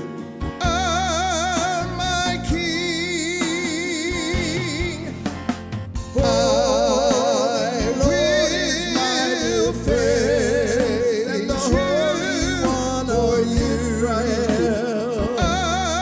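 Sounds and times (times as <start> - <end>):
instrumental accompaniment: 0.0 - 16.0
person singing with vibrato: 0.5 - 5.2, 6.2 - 16.0.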